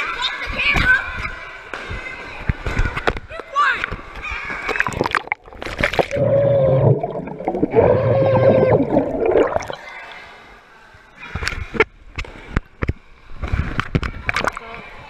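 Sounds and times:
water splashes: 4.6s - 10.3s
underwater gurgling with hum: 4.8s - 9.9s.

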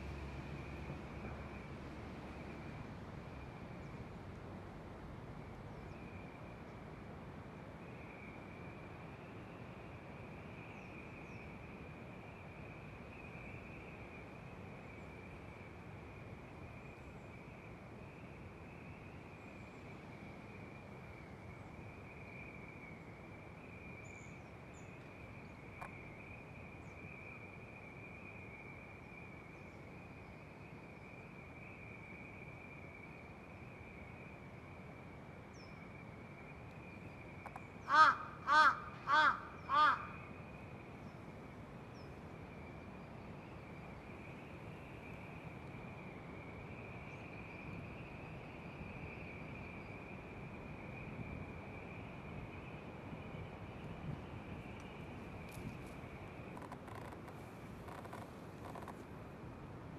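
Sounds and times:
crow cawing: 37.9s - 40.2s.

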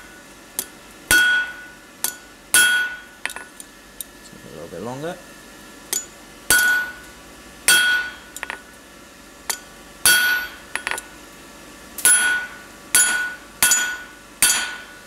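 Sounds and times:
hammer ringing on metal: 1.1s - 1.7s, 2.6s - 3.0s, 6.5s - 7.0s, 7.7s - 8.3s, 10.1s - 10.6s, 12.1s - 14.9s.

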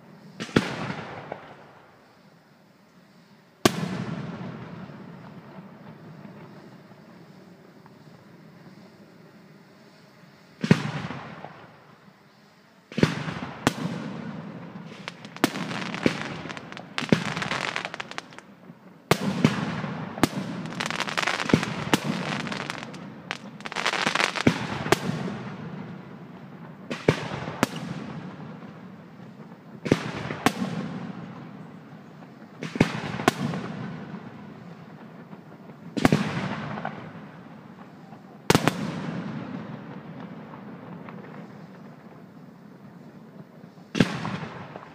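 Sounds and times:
firework shell bursts: 14.9s - 18.5s, 20.6s - 24.6s.

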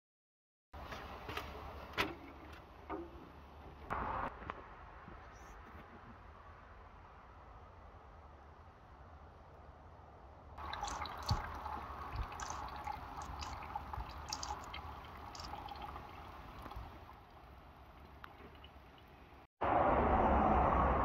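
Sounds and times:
liquid dripping and trickling: 10.6s - 19.4s.

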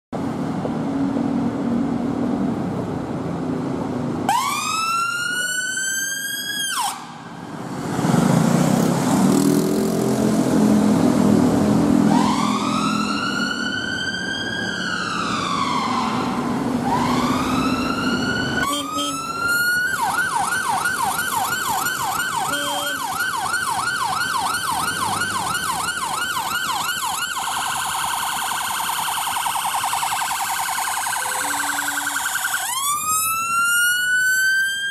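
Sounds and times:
traffic rumble: 0.2s - 34.9s
ambulance sirens: 4.2s - 7.8s, 10.6s - 34.9s.

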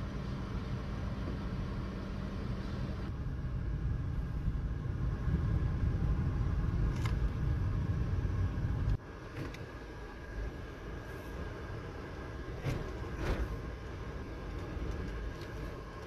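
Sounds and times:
car engine and road rumble: 0.0s - 16.0s.

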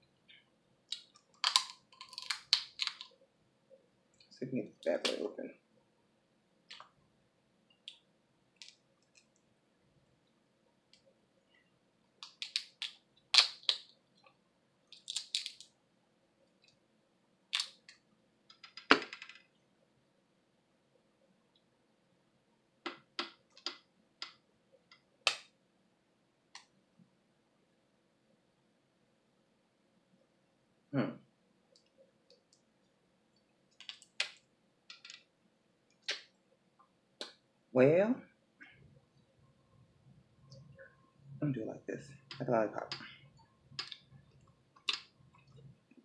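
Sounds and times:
crab shells cracking and snapping: 0.9s - 3.1s, 12.2s - 13.9s, 14.9s - 15.7s, 17.5s - 17.9s.

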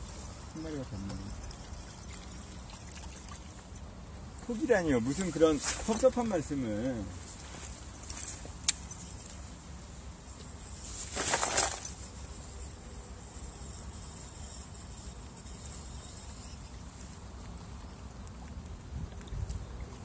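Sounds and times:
wind rumble on microphone: 18.3s - 20.0s.

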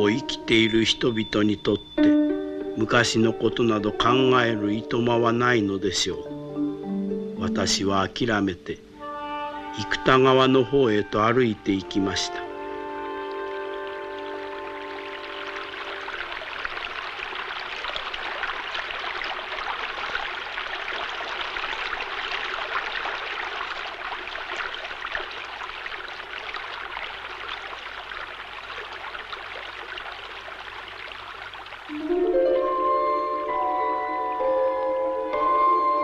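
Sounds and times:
river water rushing: 12.5s - 31.9s.

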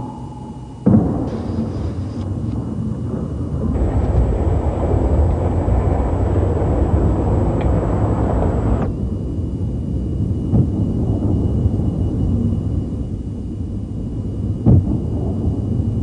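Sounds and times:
skateboard wheels rolling: 3.6s - 8.9s.

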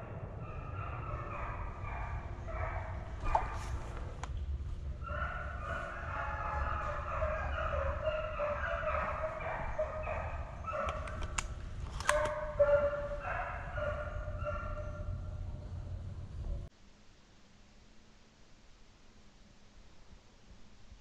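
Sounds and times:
hounds baying: 0.0s - 4.1s, 4.9s - 15.4s
sharp clicks: 10.8s - 12.4s.

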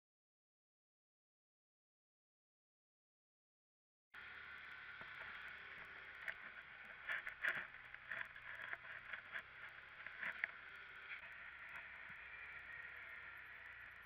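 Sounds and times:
steady hiss of moving vehicle: 4.2s - 14.0s
knocks and rattles over rough ground: 4.9s - 13.0s.

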